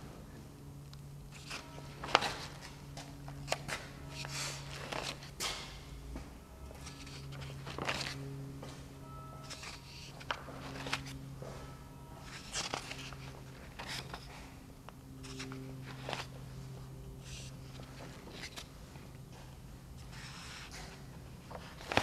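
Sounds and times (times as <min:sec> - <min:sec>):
low hum: 0:00.0 - 0:22.0
paper pages turning: 0:03.5 - 0:05.3, 0:06.8 - 0:08.2, 0:09.4 - 0:11.2, 0:12.2 - 0:14.3, 0:15.2 - 0:16.3, 0:17.2 - 0:18.7, 0:20.0 - 0:20.9, 0:21.5 - 0:22.0.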